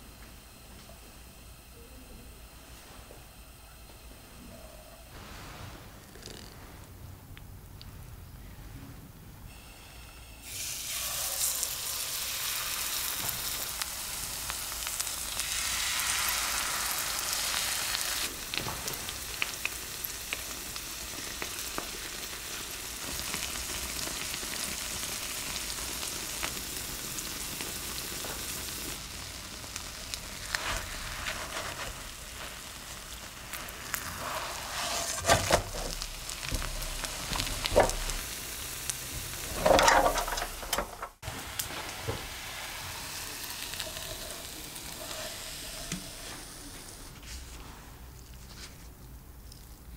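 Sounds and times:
batter sizzling in hot oil: 9.5 - 47.2.

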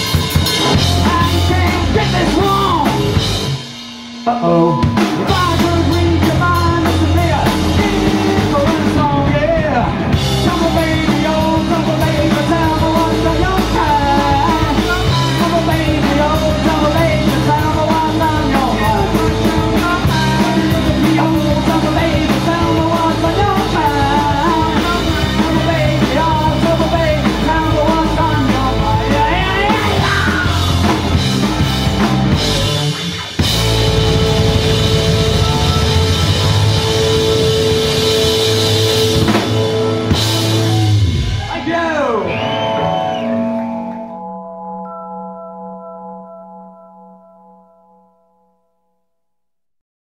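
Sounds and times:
drum kit: 0.0 - 44.2
distorted electric guitars: 0.0 - 44.7
bass: 0.0 - 48.5
shouted lead vocal: 0.9 - 3.2, 4.3 - 31.2, 39.7 - 43.5.

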